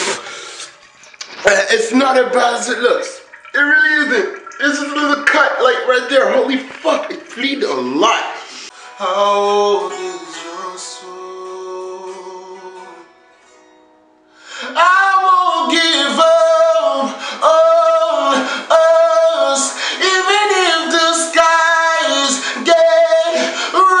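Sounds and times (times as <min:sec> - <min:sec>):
man singing: 0:03.6 - 0:13.1, 0:14.5 - 0:24.0.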